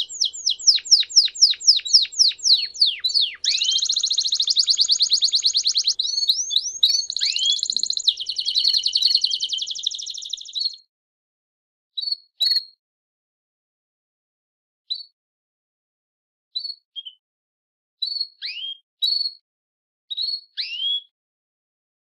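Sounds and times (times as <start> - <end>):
canary singing trills: 0.0 - 10.8.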